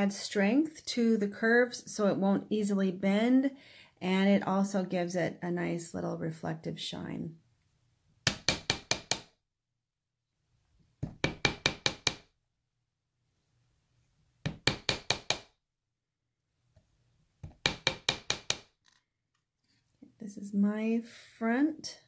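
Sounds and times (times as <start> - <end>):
hammer tapping wire on steel: 8.2 - 9.4, 11.0 - 12.3, 14.4 - 15.5, 17.4 - 18.7.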